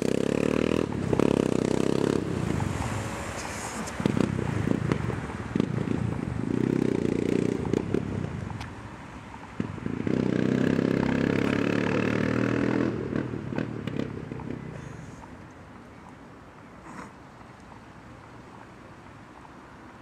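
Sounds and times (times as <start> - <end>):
motorcycle accelerating hard: 0.0 - 8.6, 9.6 - 14.7
exhaust crackling pops: 3.4 - 8.8.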